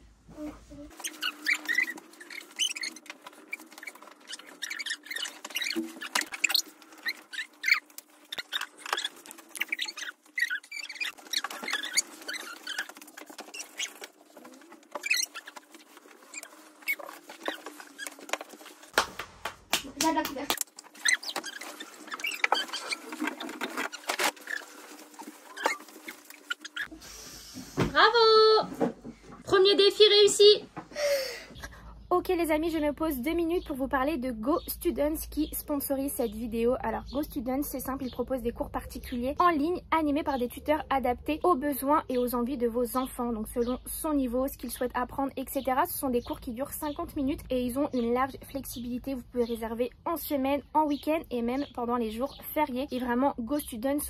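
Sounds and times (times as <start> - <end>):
hands and feet tapping on bed: 18.3 - 20.7.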